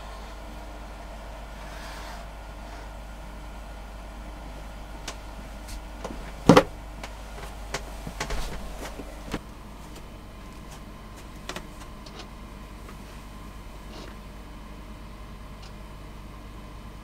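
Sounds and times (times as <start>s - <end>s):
steady low hum: 0.0s - 17.0s
knocks and bumps: 5.0s - 12.2s
rustling: 5.1s - 12.0s.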